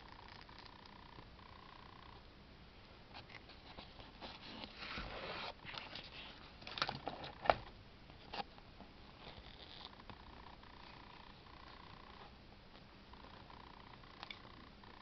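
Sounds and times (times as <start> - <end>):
handling noise rustling: 3.1 - 9.4.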